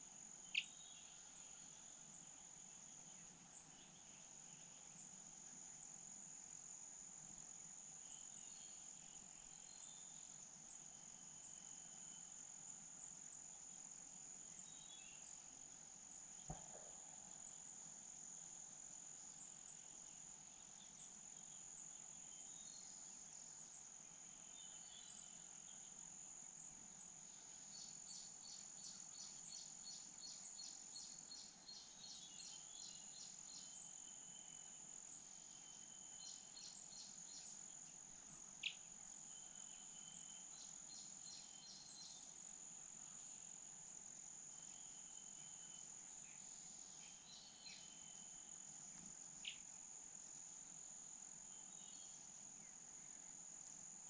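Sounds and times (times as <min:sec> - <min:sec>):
insects chirring: 0:00.0 - 0:54.0
small bird chirping: 0:00.4 - 0:05.2, 0:35.4 - 0:43.3, 0:44.6 - 0:49.7.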